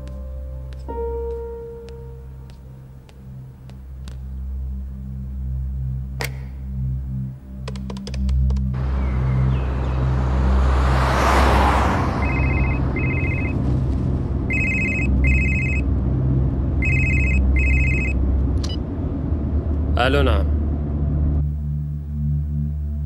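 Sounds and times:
mobile phone ringing: 0:12.2 - 0:13.6, 0:14.5 - 0:15.8, 0:16.8 - 0:18.2
low steady rumble: 0:12.3 - 0:23.0.

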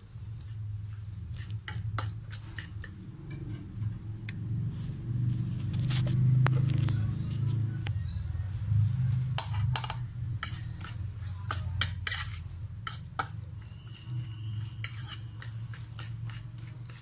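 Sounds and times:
fork scraping a plate: 0:00.4 - 0:04.0, 0:09.4 - 0:17.0.

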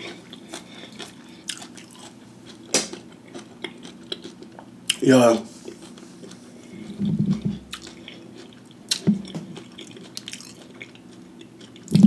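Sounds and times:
man chewing: 0:00.0 - 0:12.0.

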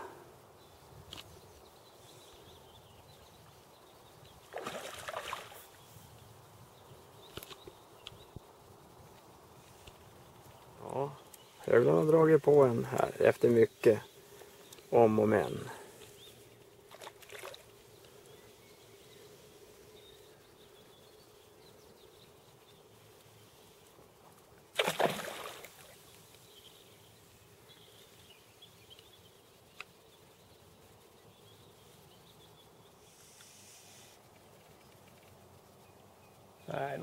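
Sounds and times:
faint outdoor background: 0:00.0 - 0:37.0
fish splashing in water: 0:04.5 - 0:05.6, 0:24.7 - 0:26.0.

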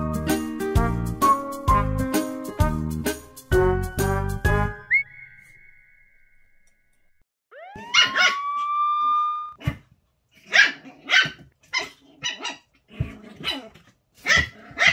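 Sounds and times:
rising whistle-like tone: 0:04.8 - 0:09.6
small dog barking: 0:07.8 - 0:08.4, 0:10.5 - 0:12.7, 0:13.4 - 0:14.9.

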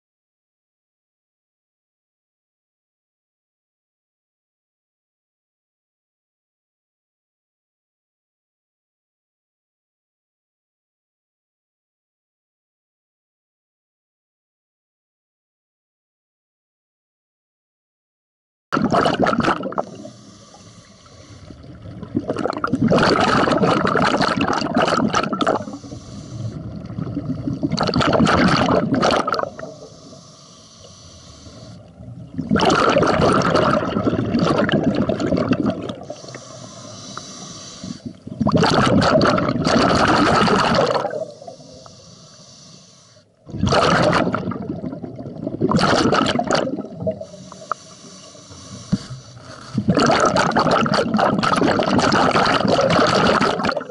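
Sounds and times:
bubbles rushing from regulator: 0:18.8 - 0:20.2, 0:21.5 - 0:30.2, 0:31.6 - 0:41.7, 0:43.5 - 0:47.8, 0:48.6 - 0:53.9
regulator inhalation hiss: 0:19.9 - 0:21.5, 0:25.6 - 0:26.6, 0:29.5 - 0:31.9, 0:36.1 - 0:38.2, 0:41.2 - 0:43.4, 0:47.2 - 0:49.9.

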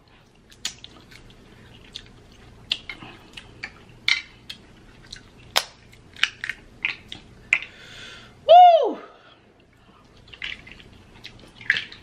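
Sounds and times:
crab shells cracking: 0:02.0 - 0:07.7.

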